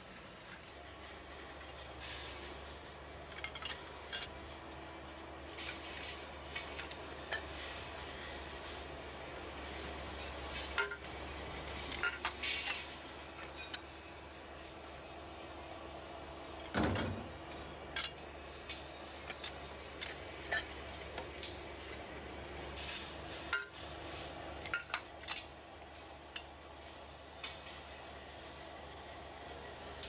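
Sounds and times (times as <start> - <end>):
steel tubes clanking: 10.2 - 11.1, 11.7 - 14.0, 22.8 - 23.9.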